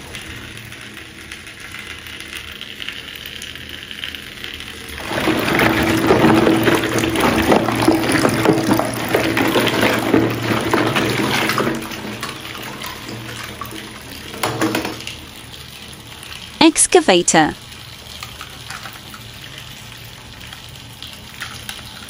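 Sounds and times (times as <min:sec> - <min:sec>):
water splashing in a bucket: 0:04.9 - 0:16.6.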